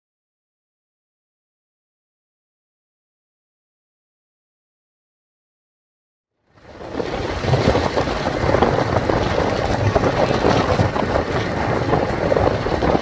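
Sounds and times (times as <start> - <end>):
car road noise: 6.6 - 13.0
wind buffeting microphone: 6.6 - 13.0.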